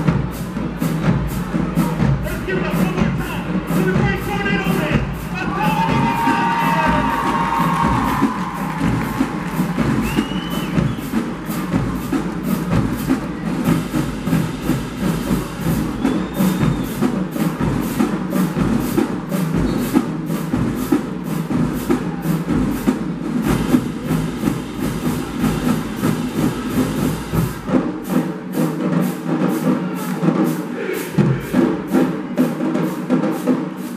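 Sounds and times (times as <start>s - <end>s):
bass drums: 0.0s - 28.6s
cymbals: 0.0s - 33.9s
snare drums: 0.0s - 33.9s.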